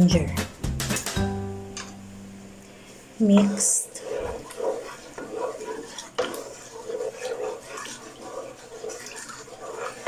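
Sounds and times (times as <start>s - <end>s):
liquid swishing: 2.8s - 10.0s
spoon scraping and knocking pot: 3.3s - 10.0s.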